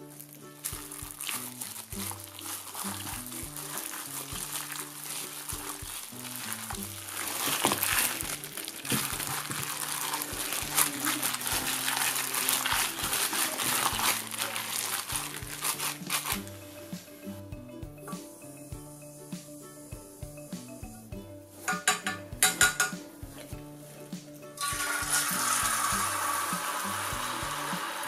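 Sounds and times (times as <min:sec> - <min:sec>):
light background music: 0:00.0 - 0:28.0
wet squelching of kneaded meat: 0:00.1 - 0:16.6.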